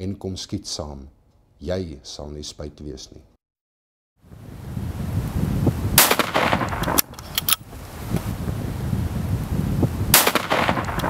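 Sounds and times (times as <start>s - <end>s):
loud gunshot: 6.0s - 7.1s, 10.1s - 11.0s
sharp clicks: 6.7s - 7.6s.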